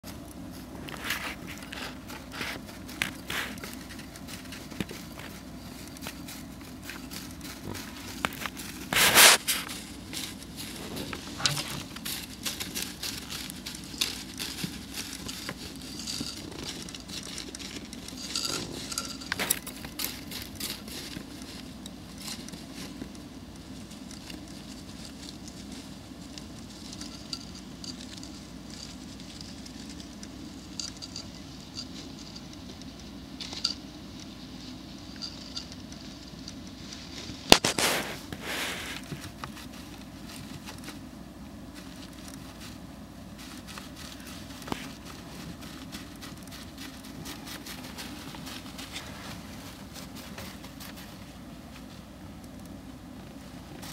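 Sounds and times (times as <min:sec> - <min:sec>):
hamster rustling in bedding: 0:00.5 - 0:23.1, 0:36.7 - 0:52.0.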